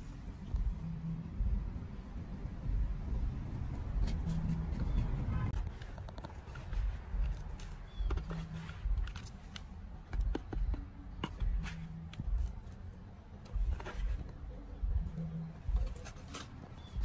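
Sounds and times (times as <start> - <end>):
low rumble: 0.0 - 5.7
trowel scraping soil: 6.4 - 9.6, 15.9 - 17.0.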